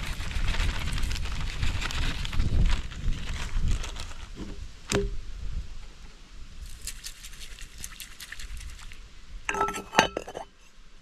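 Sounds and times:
wind buffeting microphone: 0.0s - 6.7s.

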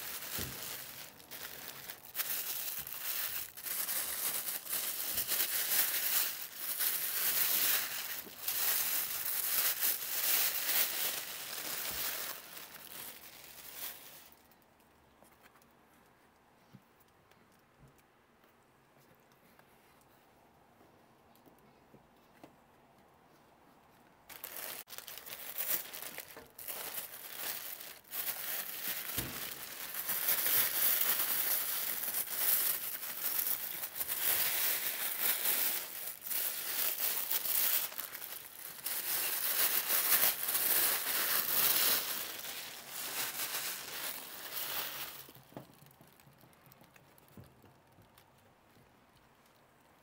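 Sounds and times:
plastic bag crinkling: 0.0s - 14.7s, 24.3s - 48.2s.

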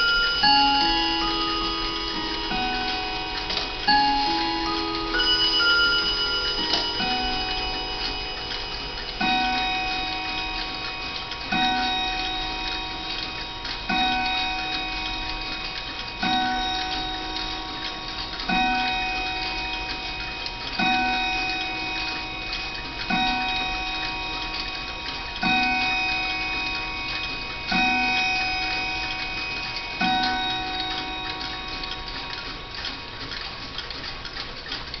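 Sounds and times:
clock chime strikes: 0.0s - 34.5s
clock ticking: 0.0s - 35.0s.

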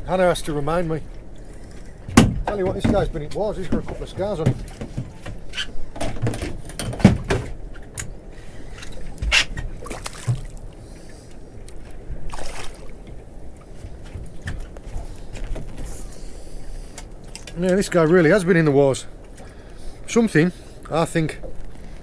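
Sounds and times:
water lapping against boat hull: 0.7s - 18.4s
knocks and clicks of fishing gear: 1.6s - 8.2s.

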